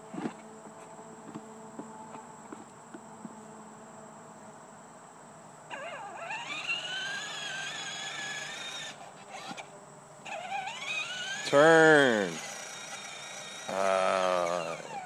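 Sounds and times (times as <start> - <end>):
toy electric motor whining: 5.7 - 15.0.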